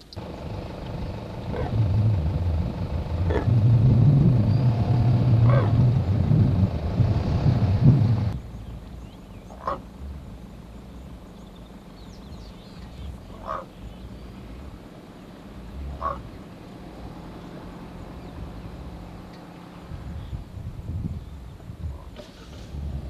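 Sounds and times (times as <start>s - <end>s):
engine idling with low rumble: 0.0s - 23.0s
animal calls: 1.4s - 2.0s, 3.1s - 3.6s, 4.4s - 6.0s, 9.5s - 9.9s, 13.3s - 13.8s, 15.8s - 16.4s.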